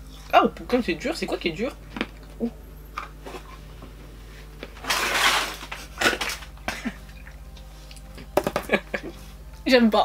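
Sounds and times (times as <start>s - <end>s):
person laughing: 6.7s - 7.2s, 8.5s - 9.2s.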